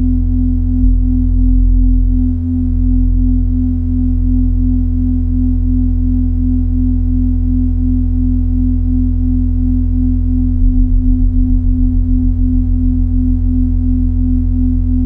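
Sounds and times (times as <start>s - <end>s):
electronic sine tone drone music: 0.0s - 4.7s, 8.5s - 15.0s.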